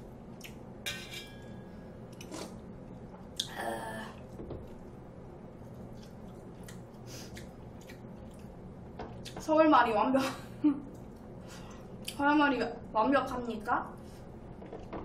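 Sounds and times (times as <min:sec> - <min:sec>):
steady low hum: 0:00.0 - 0:15.0
close-miked chewing: 0:05.6 - 0:08.6.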